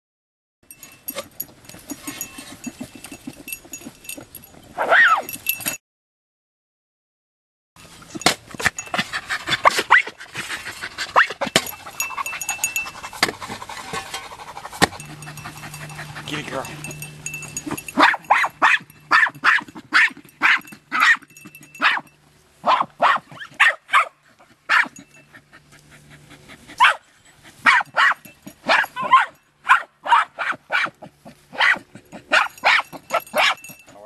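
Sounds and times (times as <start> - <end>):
dogs barking sharply: 8.6 - 10.2, 11.0 - 25.1, 26.8 - 33.8.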